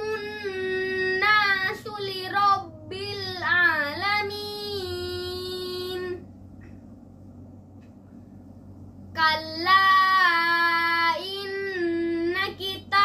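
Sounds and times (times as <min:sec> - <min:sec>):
boy chanting melodically: 0:09.2 - 0:13.0.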